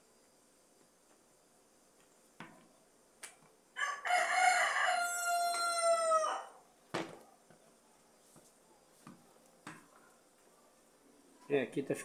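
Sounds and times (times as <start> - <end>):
rooster crowing: 3.8 - 6.6.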